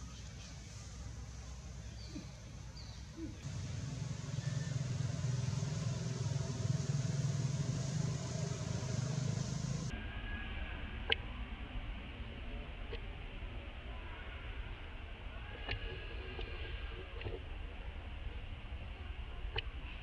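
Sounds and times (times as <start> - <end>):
vehicle engine humming: 0.7 - 9.9.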